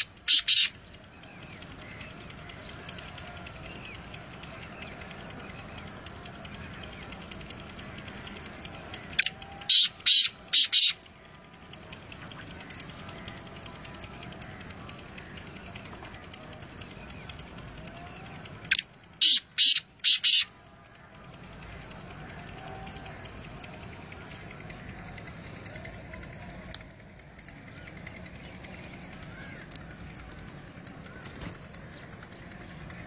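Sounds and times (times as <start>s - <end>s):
francolin calling: 0.0s - 11.1s, 18.7s - 20.6s.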